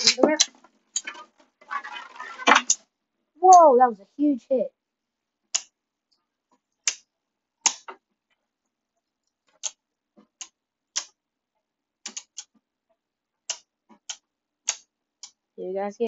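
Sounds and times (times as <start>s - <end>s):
spinning tops clacking together: 0.0s - 2.8s.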